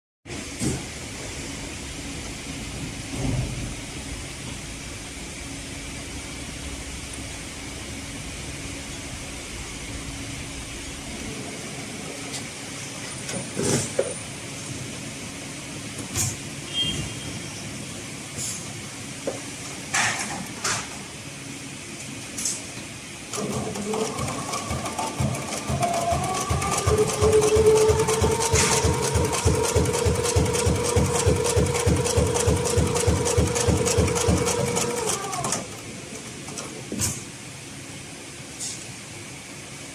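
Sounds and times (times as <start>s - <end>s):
sewing machine stitching: 23.3s - 35.8s
sewing machine low hum: 23.3s - 36.8s.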